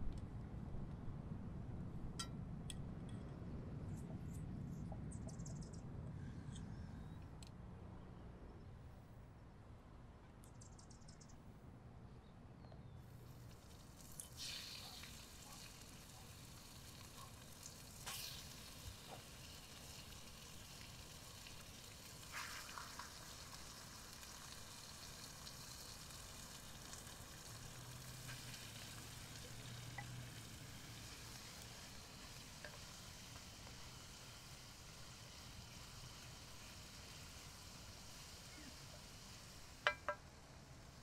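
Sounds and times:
chicken sizzling in oil: 0:13.3 - 0:41.0.

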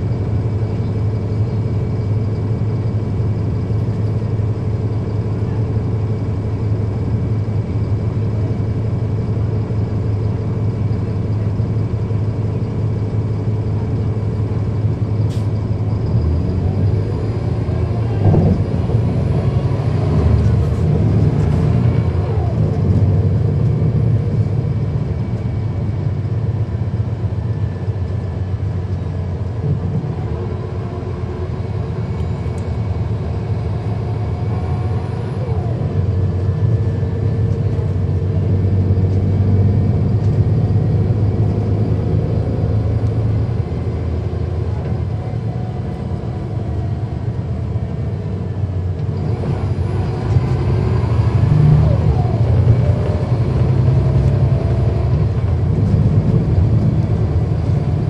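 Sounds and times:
bus diesel engine droning: 0:00.0 - 0:58.0
road noise: 0:00.0 - 0:58.0.

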